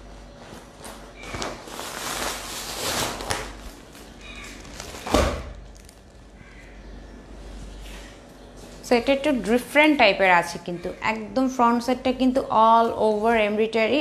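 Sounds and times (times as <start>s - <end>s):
plastic packaging rustling: 0.3s - 6.4s.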